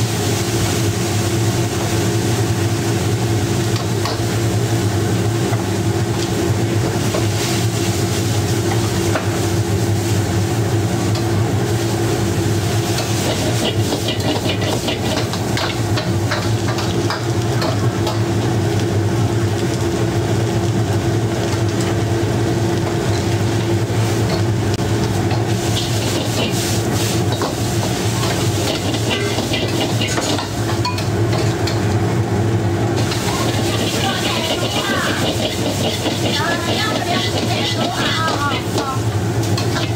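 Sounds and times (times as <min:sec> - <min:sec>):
low kitchen hum: 0:00.0 - 0:39.9
noodles sizzling in wok: 0:00.0 - 0:39.9
metal ladles scraping wok: 0:12.9 - 0:15.8, 0:25.3 - 0:31.8, 0:33.0 - 0:39.9.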